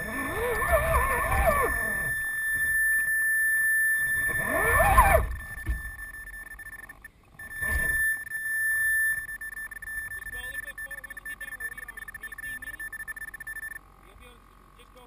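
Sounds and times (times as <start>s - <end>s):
electric motor whining: 0.0s - 6.1s.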